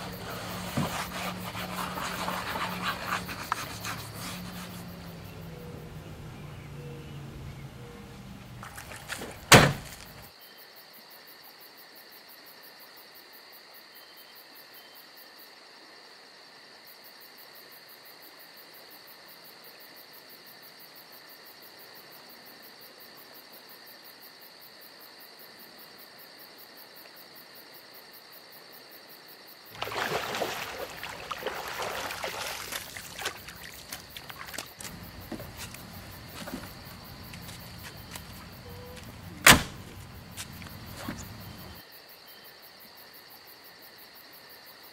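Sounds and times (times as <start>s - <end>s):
crickets trilling: 0.0s - 44.9s
hand splashing water: 29.8s - 35.0s.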